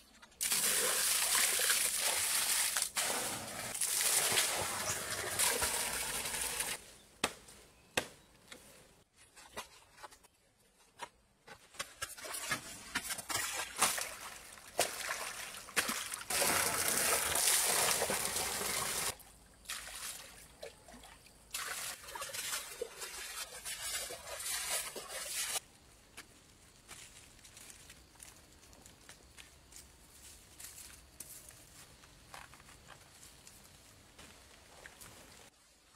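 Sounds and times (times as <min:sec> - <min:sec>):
water pouring into a pond: 0:00.4 - 0:06.8, 0:13.3 - 0:25.6
knocks and splashes: 0:11.9 - 0:25.6.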